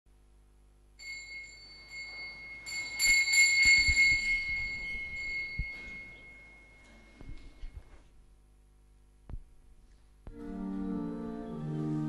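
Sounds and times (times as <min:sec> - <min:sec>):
small bells ringing: 0:01.0 - 0:07.1.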